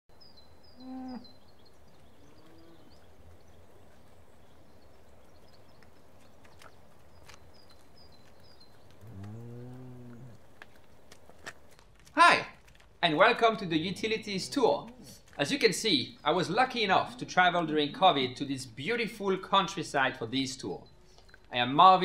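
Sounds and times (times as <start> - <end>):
cattle mooing: 9.0 - 10.4.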